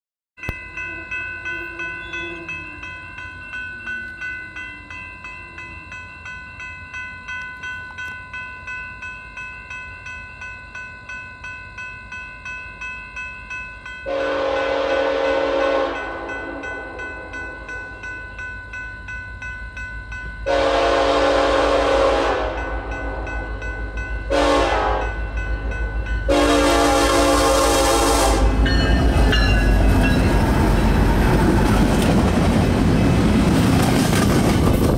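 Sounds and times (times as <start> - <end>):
railroad crossing bell ringing: 0.4 - 33.4
locomotive horn blasts: 1.5 - 2.8, 14.1 - 17.6, 20.5 - 23.5, 24.3 - 25.2, 26.3 - 28.7.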